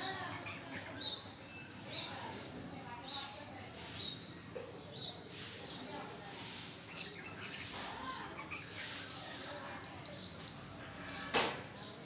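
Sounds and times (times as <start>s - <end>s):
bird chirping: 3.0s - 12.0s.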